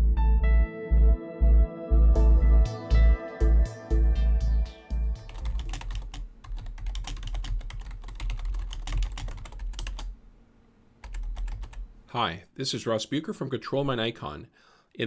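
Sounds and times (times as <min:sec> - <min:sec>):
intro music chord: 0:00.0 - 0:05.3
keyboard typing clicks: 0:05.3 - 0:10.1, 0:11.0 - 0:11.9.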